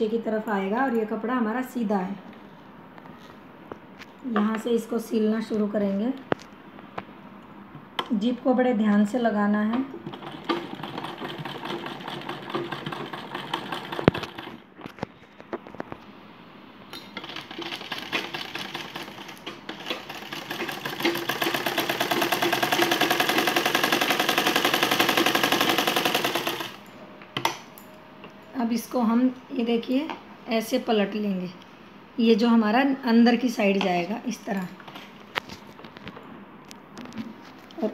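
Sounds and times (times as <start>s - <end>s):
sewing machine stitching: 10.0s - 14.6s, 17.2s - 26.8s.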